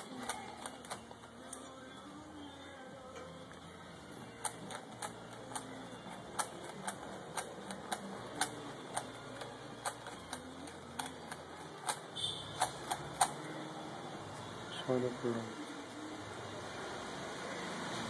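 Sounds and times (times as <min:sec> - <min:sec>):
puzzle cube layers clicking: 0:04.4 - 0:13.4.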